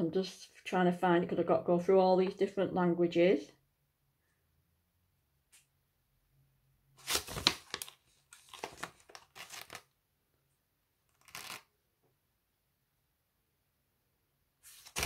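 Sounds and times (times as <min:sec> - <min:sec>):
plastic bag crinkling and rustling: 0:07.0 - 0:09.9.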